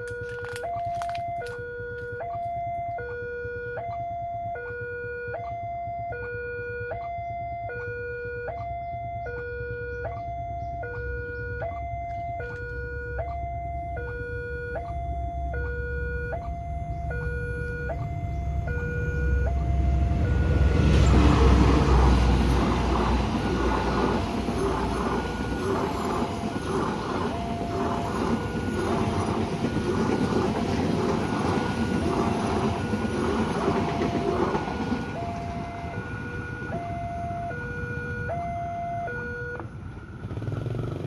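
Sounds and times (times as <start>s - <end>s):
two-tone level crossing alarm: 0.0s - 40.9s
low train rumble: 9.0s - 41.0s.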